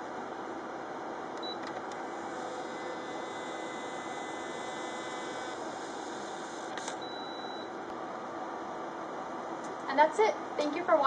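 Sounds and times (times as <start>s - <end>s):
equipment hum: 0.0s - 11.0s
printer whine: 1.4s - 7.8s
short beep: 7.0s - 7.7s.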